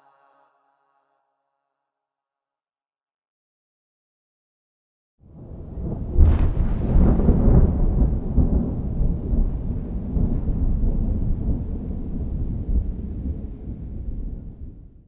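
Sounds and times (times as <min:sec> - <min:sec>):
thunder rumbling: 0:05.3 - 0:15.0.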